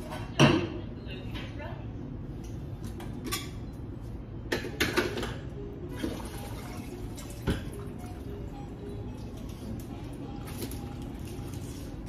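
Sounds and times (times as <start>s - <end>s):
pans and utensils clattering: 4.5s - 5.5s.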